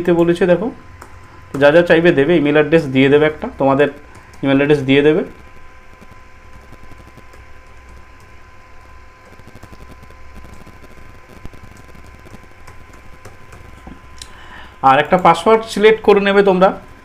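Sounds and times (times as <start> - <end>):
keyboard typing: 0.0 - 15.7
low hum: 0.0 - 15.7.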